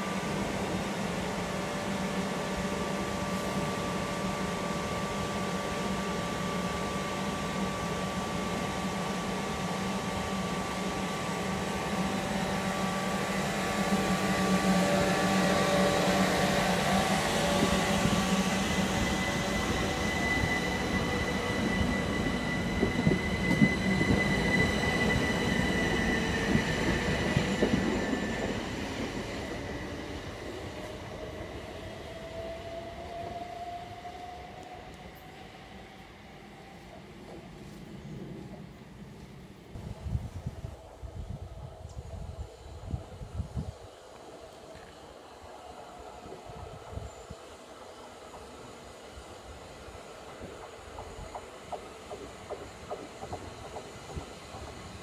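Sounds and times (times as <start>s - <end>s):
electric train whine: 0.0s - 55.0s
train wheel clicks and squeal: 17.3s - 30.2s, 50.4s - 55.0s.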